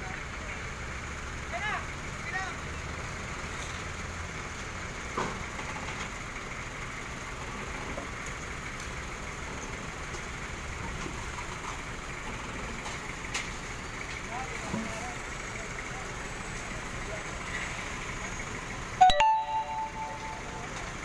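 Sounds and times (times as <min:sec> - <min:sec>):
engine idling: 0:00.0 - 0:21.0.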